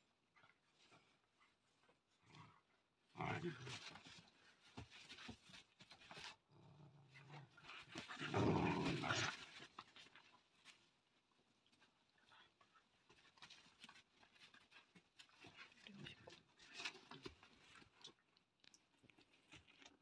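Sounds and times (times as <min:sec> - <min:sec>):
puppies growling playfully: 0:06.2 - 0:09.8.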